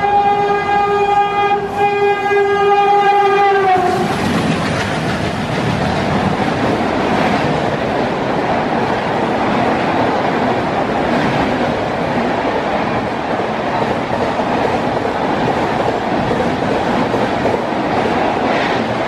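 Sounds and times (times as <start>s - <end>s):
train horn blast: 0.0s - 4.1s
train coaches rushing past: 0.0s - 19.0s.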